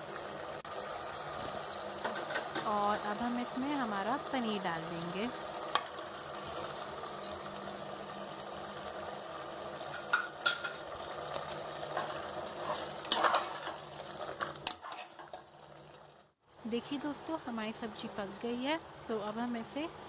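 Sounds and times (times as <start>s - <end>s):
low steady sizzle: 0.0s - 20.0s
ladle scraping and clinking on pot: 5.7s - 7.5s, 11.8s - 15.5s.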